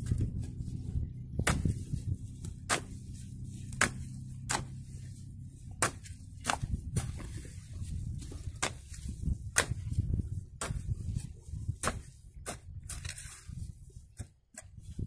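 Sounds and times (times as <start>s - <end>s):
low steady hum: 0.0s - 15.0s
hoe striking damp clay: 3.7s - 4.8s.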